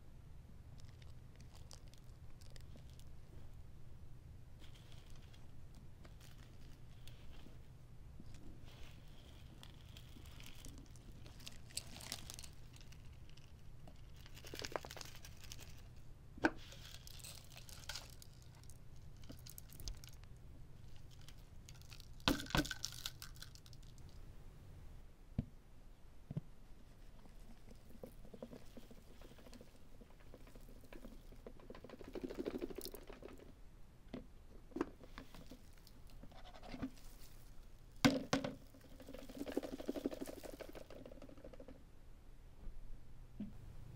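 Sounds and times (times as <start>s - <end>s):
debris rustling and pattering out: 8.7s - 15.9s.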